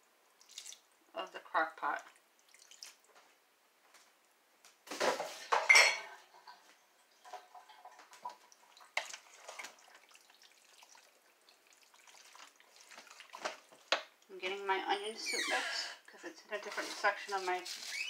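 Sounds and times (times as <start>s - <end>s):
dishes clattering: 4.9s - 8.1s
wooden spoon scraping ceramic pot: 16.6s - 18.0s.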